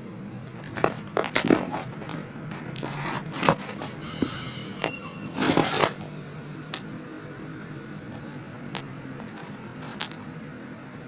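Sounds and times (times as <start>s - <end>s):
hand handling phone: 0.4s - 6.1s, 8.1s - 10.3s
rustling scrape: 0.6s - 6.8s, 8.1s - 10.3s.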